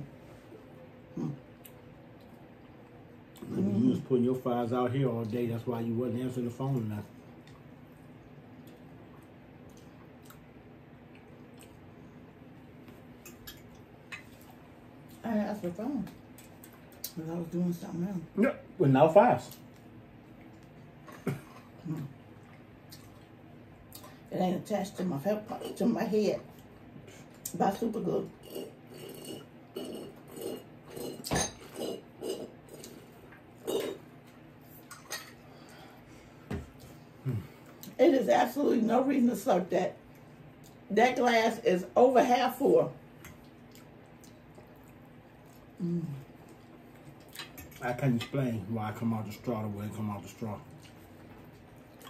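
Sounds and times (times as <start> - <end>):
person chewing: 7.4 - 12.0, 21.6 - 24.1, 43.3 - 47.8.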